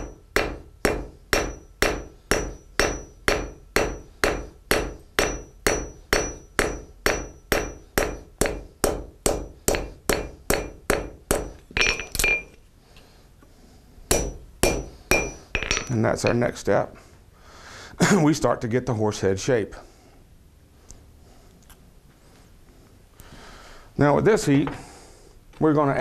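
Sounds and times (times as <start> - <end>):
anvil ringing: 0.0 - 12.6, 14.1 - 16.4
hammer striking steel on anvil: 0.0 - 12.6, 14.1 - 16.4.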